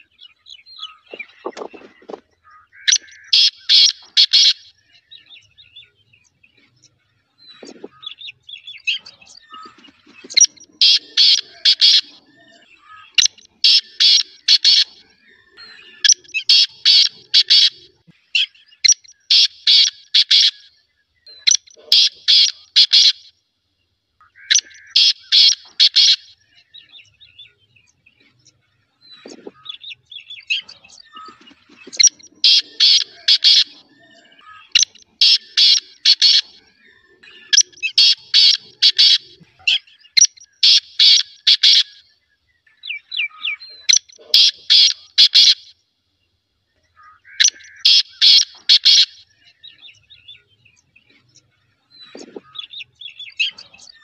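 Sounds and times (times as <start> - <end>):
partridge calling sharp notes: 0.0 - 23.4, 24.2 - 42.1, 42.7 - 45.8, 46.8 - 54.0.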